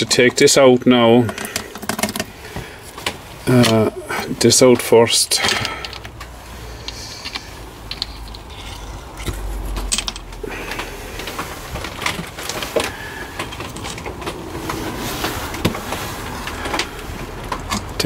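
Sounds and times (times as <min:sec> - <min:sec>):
clinking of small steel parts: 0:05.4 - 0:06.2, 0:06.8 - 0:14.2.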